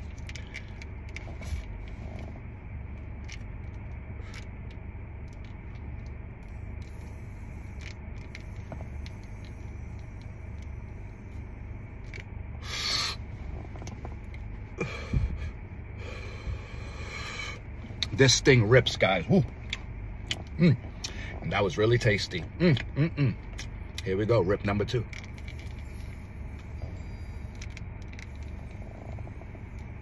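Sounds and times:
low rumble inside a car: 0.0s - 30.0s
breathy rush of vaping: 12.6s - 13.3s, 14.8s - 17.7s.

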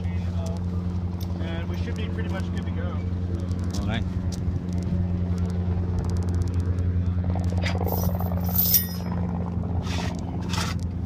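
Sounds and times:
low engine hum: 0.0s - 11.0s
metal chain clinking and scraping: 7.6s - 9.1s.

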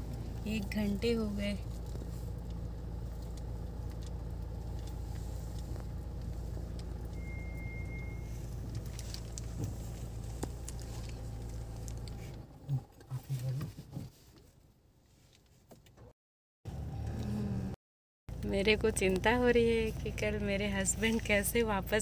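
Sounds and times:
car engine hum inside cabin: 0.0s - 16.1s, 16.7s - 22.0s
thin high tone: 7.1s - 8.4s.

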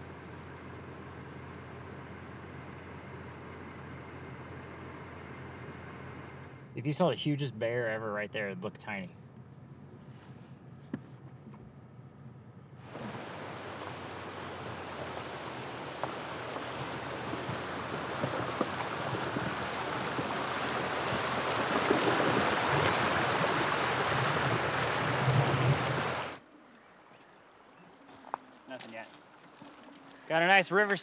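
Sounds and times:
river water rushing: 12.8s - 26.4s.

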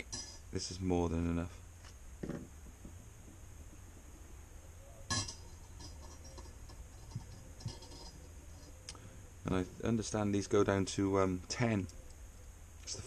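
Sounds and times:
metal cogs clinking: 0.0s - 0.7s, 4.9s - 8.9s.

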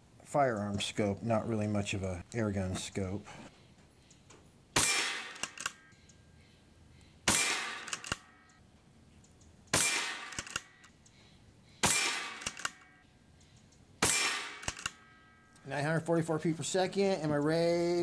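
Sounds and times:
faint clicks: 3.7s - 4.5s, 7.9s - 11.3s, 12.4s - 13.9s
air rifle shots: 4.8s - 5.8s, 7.2s - 8.4s, 9.7s - 10.8s, 11.8s - 12.9s, 14.0s - 15.1s.

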